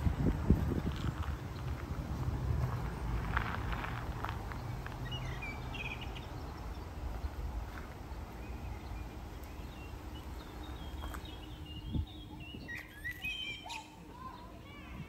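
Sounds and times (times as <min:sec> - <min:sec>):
steady low rumble: 0:00.0 - 0:13.2
small birds chirping: 0:04.2 - 0:14.8.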